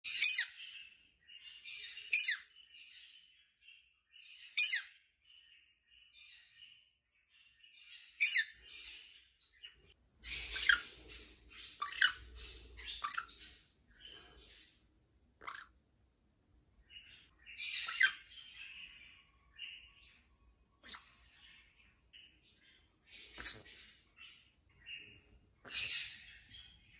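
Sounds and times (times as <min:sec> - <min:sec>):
parrot chattering: 0:10.2 - 0:11.0, 0:11.6 - 0:13.4, 0:15.4 - 0:15.8, 0:17.6 - 0:18.3
parrot screeching: 0:11.8 - 0:12.2, 0:15.4 - 0:15.7.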